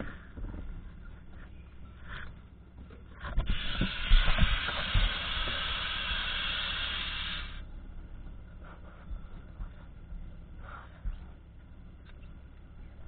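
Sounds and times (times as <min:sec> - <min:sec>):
compressed air hissing: 0:03.3 - 0:07.6.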